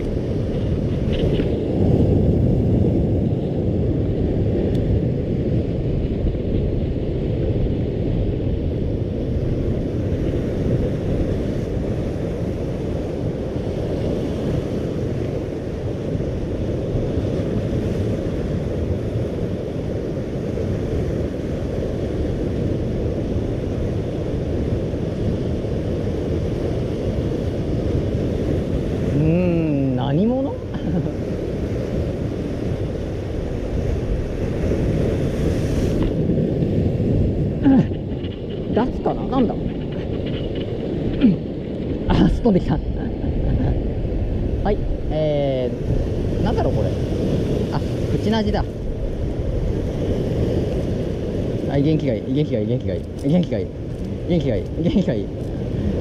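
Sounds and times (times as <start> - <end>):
surf washing: 0.0 - 56.0
wind buffeting microphone: 0.0 - 56.0.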